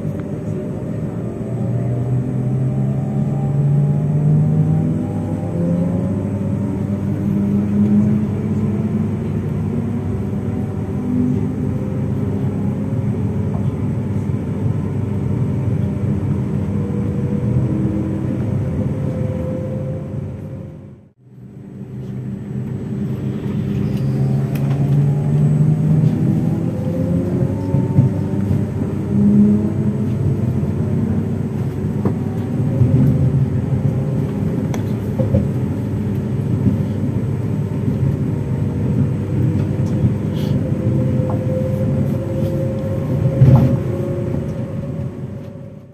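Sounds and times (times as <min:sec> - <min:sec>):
electric train rumbling: 0:00.0 - 0:45.9
whining tones rising in pitch: 0:00.8 - 0:09.2, 0:22.2 - 0:34.6, 0:38.4 - 0:45.9.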